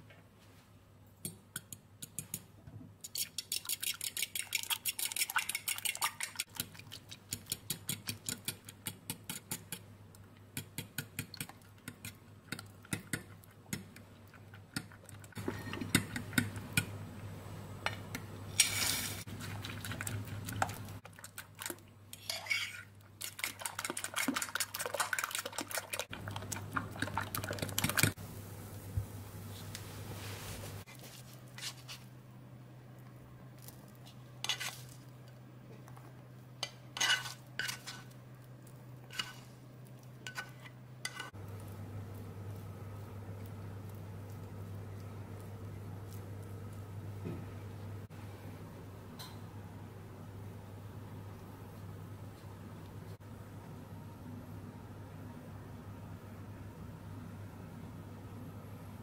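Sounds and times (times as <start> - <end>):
fork beating eggs in a bowl: 1.5 - 9.9, 10.5 - 16.9, 19.3 - 28.2, 36.6 - 38.2, 39.0 - 39.5.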